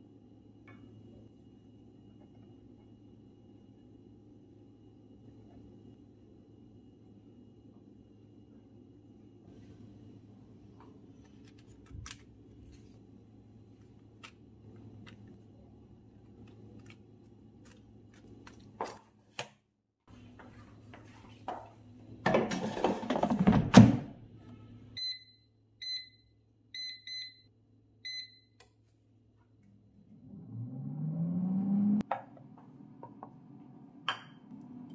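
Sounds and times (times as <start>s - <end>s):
short beeps from touch panel: 24.6s - 28.6s.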